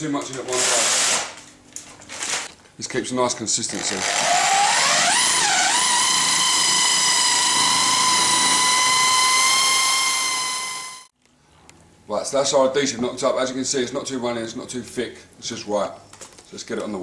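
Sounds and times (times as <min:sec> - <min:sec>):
electric paddle mixer motor whine: 0:04.0 - 0:11.1.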